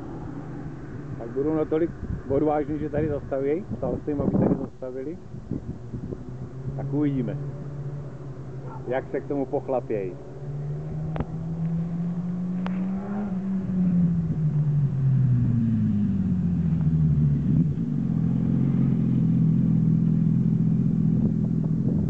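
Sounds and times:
motorcycle engine: 5.3 - 22.0.

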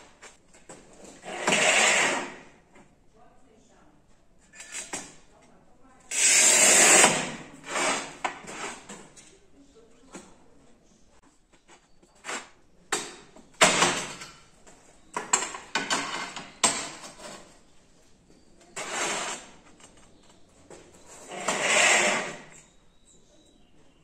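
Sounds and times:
tile scraping across workbench: 0.9 - 2.5, 6.1 - 9.1, 18.7 - 19.9, 21.0 - 22.7
cutter carriage sliding on metal rail: 1.2 - 2.4, 6.1 - 9.0, 18.8 - 19.6, 21.1 - 22.6.

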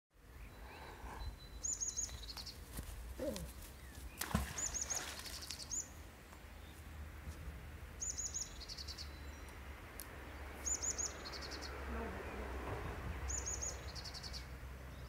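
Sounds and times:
songbird singing: 0.2 - 15.0
low wind rumble on microphone: 12.0 - 13.6.

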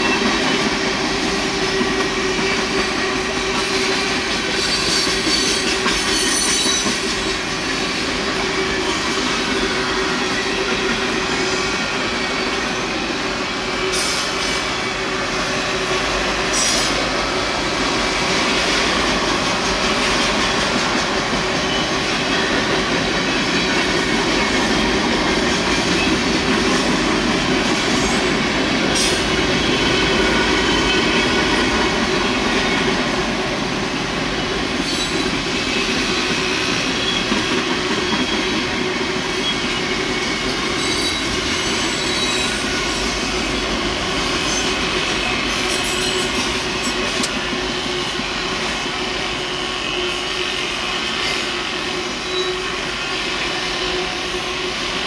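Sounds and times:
freight train rumbling and rattling: 0.0 - 55.0
high wheel squeal: 39.3 - 43.7.

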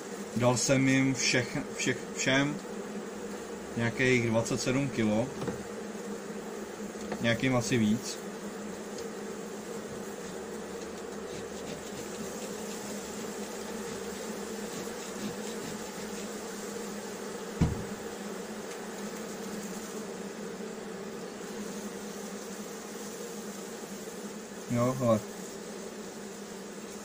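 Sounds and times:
honeybees humming: 0.0 - 27.0
dull bump: 5.3 - 5.7, 17.6 - 18.1.

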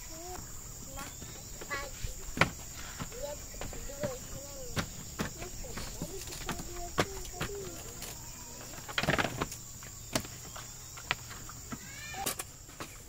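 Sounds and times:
high insect buzz: 0.0 - 13.0
plastic lids clattering on boxes: 2.4 - 10.4.

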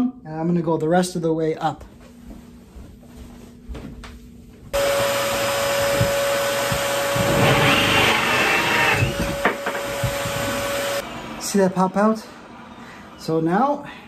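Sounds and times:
drill cutting through wood: 4.8 - 11.7.

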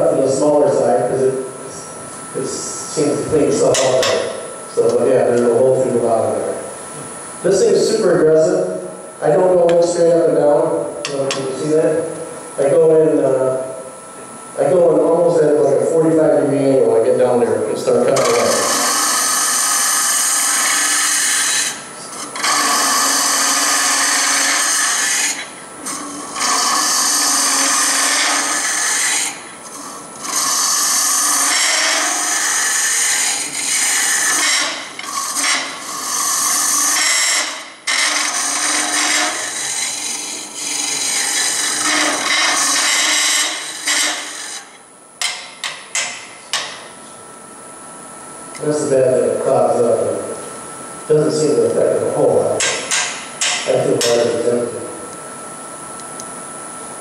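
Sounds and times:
wood lathe tool cutting: 18.0 - 46.1.

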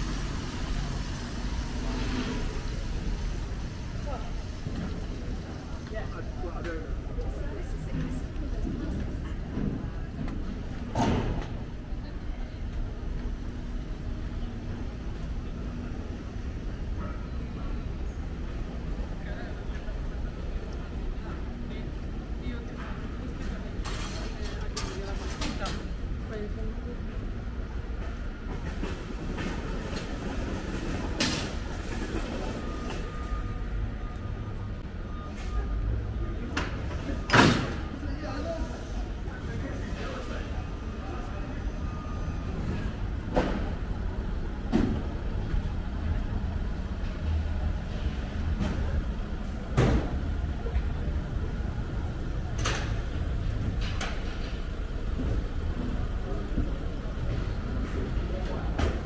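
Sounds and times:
road traffic rumble: 0.0 - 59.0.

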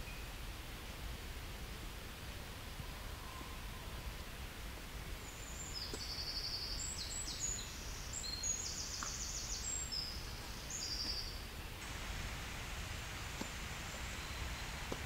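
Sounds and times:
songbird singing trills: 5.2 - 11.4, 13.1 - 15.0.

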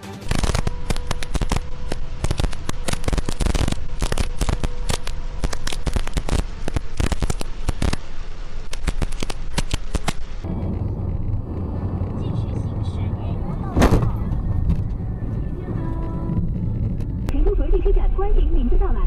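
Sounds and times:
heavy rain on car windshield: 0.3 - 12.5.

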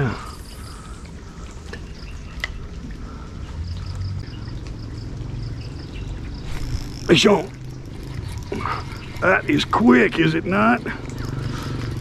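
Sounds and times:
low hum: 0.0 - 12.0
water running and trickling: 0.0 - 12.0.

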